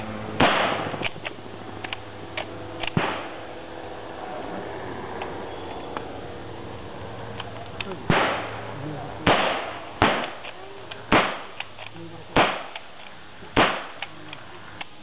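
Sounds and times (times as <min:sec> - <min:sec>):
rifle shots with echo: 0:00.4 - 0:01.1, 0:02.9 - 0:03.5, 0:08.1 - 0:14.1.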